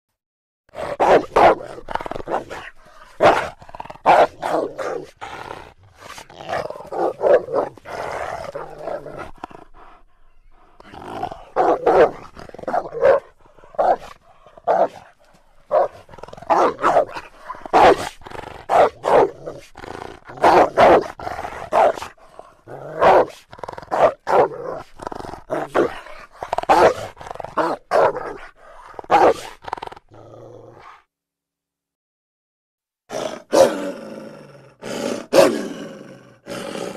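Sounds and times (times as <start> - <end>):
cartoon wolf growling and barking: 0.7 - 31.1, 33.1 - 36.9.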